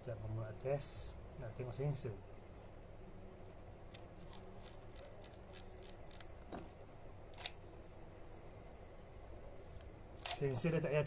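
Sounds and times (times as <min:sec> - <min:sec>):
sharp camera click: 0:07.3 - 0:07.6.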